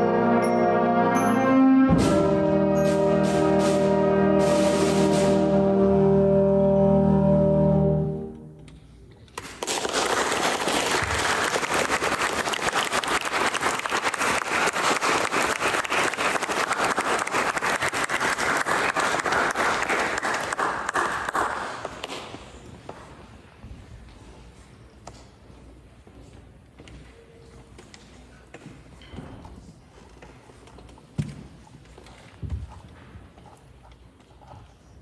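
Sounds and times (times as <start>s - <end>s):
audience applauding: 9.4s - 22.4s.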